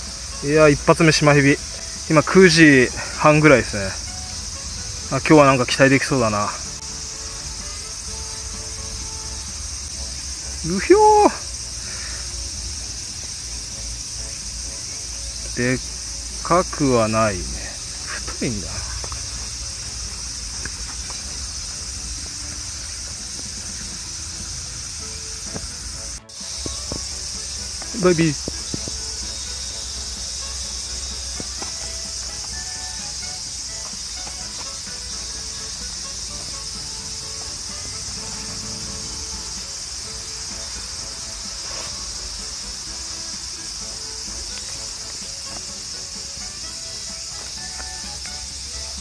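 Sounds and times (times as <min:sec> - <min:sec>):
insects droning: 0:00.0 - 0:49.0
faint ticks: 0:20.5 - 0:21.4, 0:26.5 - 0:29.1, 0:44.4 - 0:45.8.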